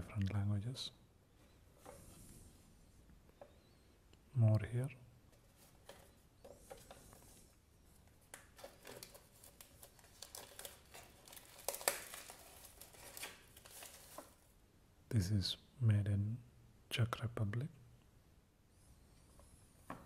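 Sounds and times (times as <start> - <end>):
paper leaflet rustling: 8.0 - 14.5
plastic wrapper crinkling: 8.0 - 14.5.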